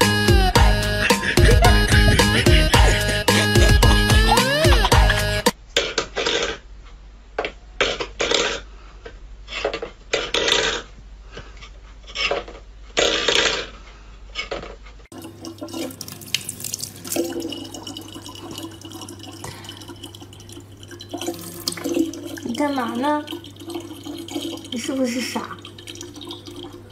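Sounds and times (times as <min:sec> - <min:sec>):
water running from a tap: 0:15.1 - 0:26.9
water splashing: 0:15.1 - 0:26.9
low steady hum: 0:15.2 - 0:26.9.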